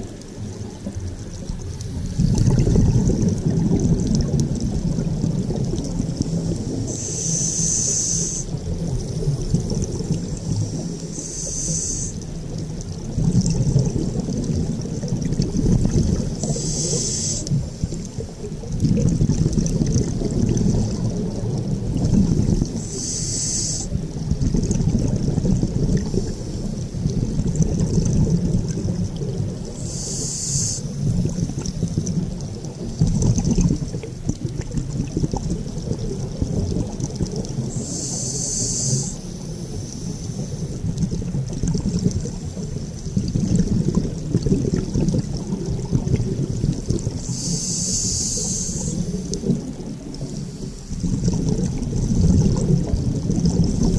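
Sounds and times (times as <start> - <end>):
underwater bubbling rumble: 0.0 - 53.9
scuba regulator hiss: 6.4 - 8.6, 10.6 - 12.2, 16.4 - 17.6, 22.8 - 24.0, 29.8 - 30.9, 37.7 - 40.7, 47.2 - 49.3.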